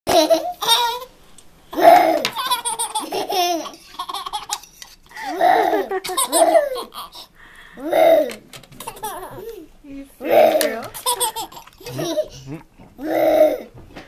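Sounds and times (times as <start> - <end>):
baby laughing: 0.1 - 1.1, 1.8 - 9.7, 10.3 - 13.7
child laughing: 1.8 - 9.7, 10.3 - 13.7.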